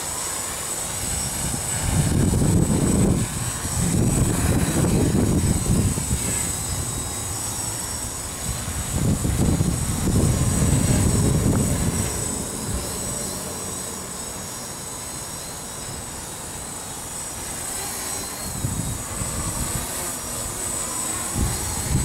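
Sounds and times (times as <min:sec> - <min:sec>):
quadcopter propellers buzzing: 0:00.0 - 0:22.0
wind buffeting microphone: 0:00.9 - 0:13.9, 0:18.4 - 0:22.0.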